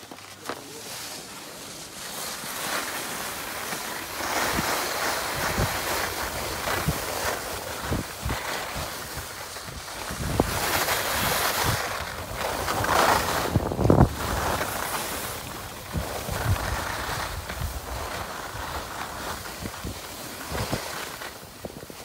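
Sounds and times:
skis scraping on snow: 0:00.0 - 0:22.0
wind buffeting microphone: 0:04.4 - 0:20.9.

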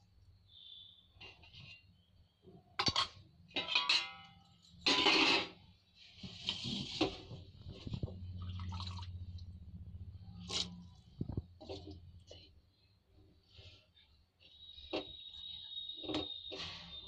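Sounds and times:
scraping in a metal pot: 0:02.8 - 0:09.4, 0:10.1 - 0:12.5
food bubbling in a pot: 0:07.0 - 0:12.3.

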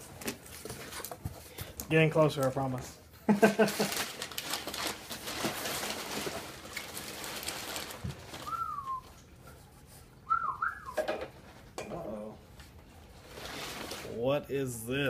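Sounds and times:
packaging rustling and crinkling: 0:00.0 - 0:09.3, 0:13.1 - 0:14.2
whistle-like notes: 0:08.4 - 0:09.1, 0:10.3 - 0:11.0.

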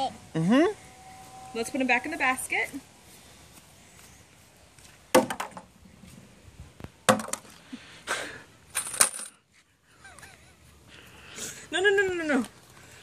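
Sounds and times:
plastic eggs clattering into a metal tub: 0:07.1 - 0:07.6, 0:08.8 - 0:09.4.

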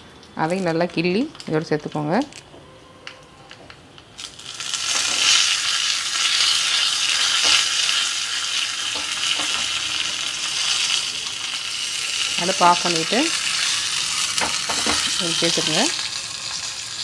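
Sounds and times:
leaves sizzling in hot oil: 0:04.2 - 0:17.0.

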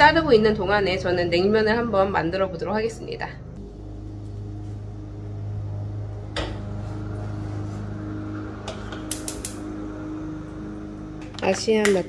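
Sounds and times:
stove igniter clicking: 0:08.7 - 0:09.7.

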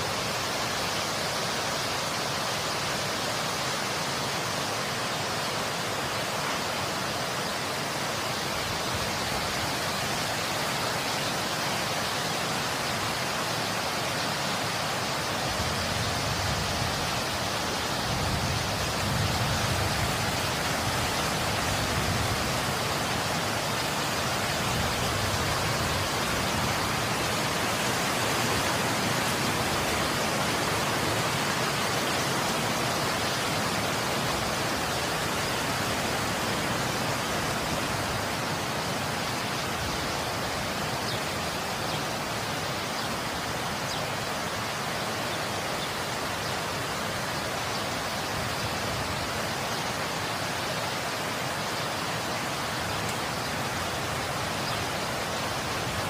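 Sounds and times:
wind blowing: 0:15.2 - 0:43.7.

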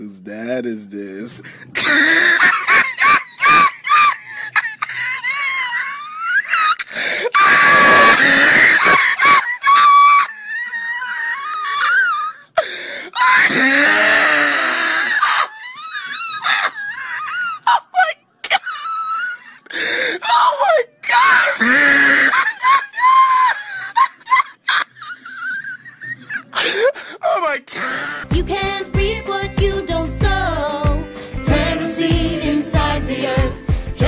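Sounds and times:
man laughing hysterically: 0:01.8 - 0:12.4, 0:21.7 - 0:26.8.

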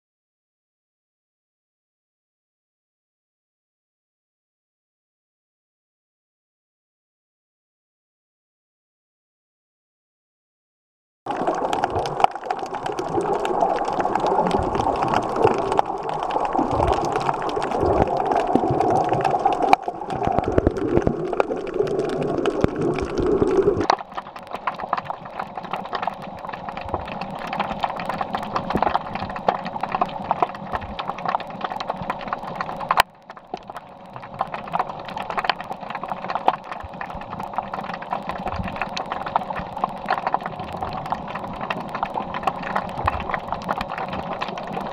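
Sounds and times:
crackle of short clicks: 0:11.3 - 0:44.9
underwater water noise: 0:11.3 - 0:44.9.

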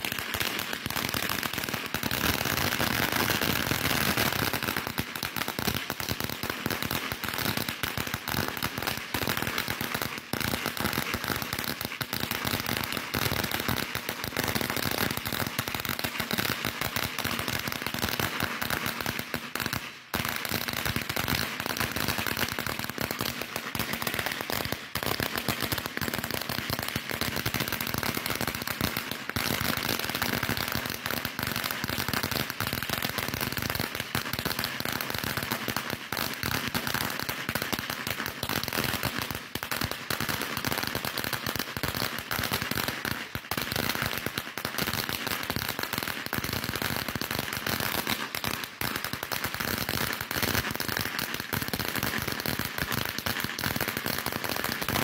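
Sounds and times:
firecrackers popping: 0:00.0 - 0:55.0.

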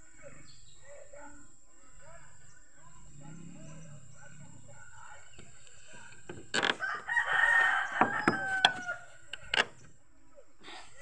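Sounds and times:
rooster crowing: 0:06.6 - 0:09.2
sharp knocks: 0:08.0 - 0:08.9.

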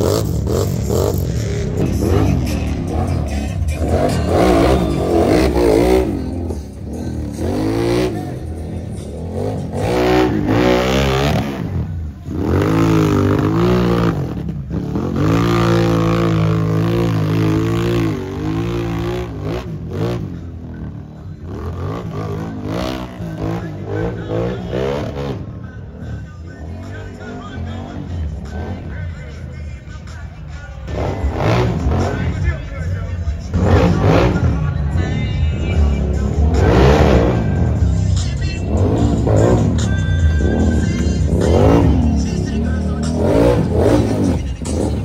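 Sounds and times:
atv engines revving: 0:00.0 - 0:45.0.

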